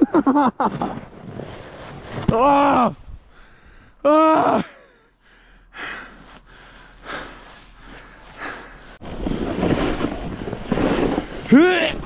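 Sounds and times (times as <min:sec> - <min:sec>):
person breathing hard: 0:03.3 - 0:04.0, 0:04.8 - 0:09.0.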